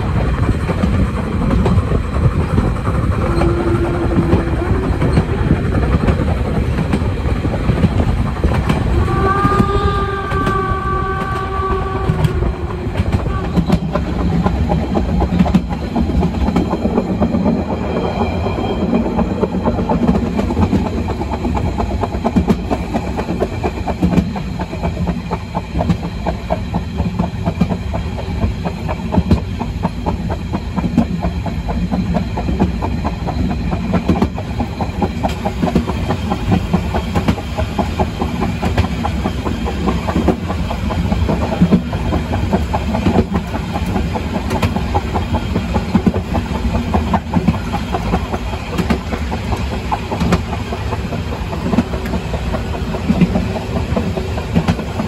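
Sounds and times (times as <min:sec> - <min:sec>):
train carriage rumbling on rails: 0:00.0 - 0:55.0
wheels clicking and knocking: 0:18.8 - 0:55.0.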